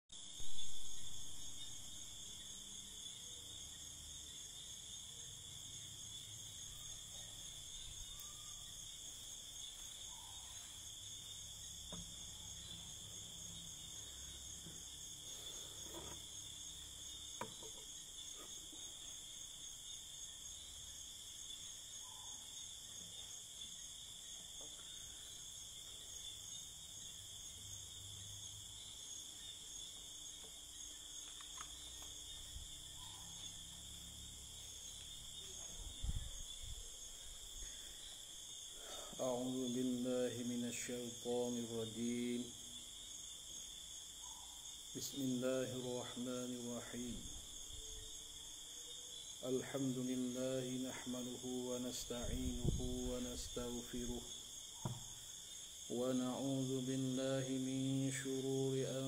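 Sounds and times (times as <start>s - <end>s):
insects chirring: 0.1s - 59.0s
faint knocks and taps: 11.9s - 12.2s, 17.4s - 18.0s, 54.8s - 55.2s
loud thump: 54.8s - 55.1s.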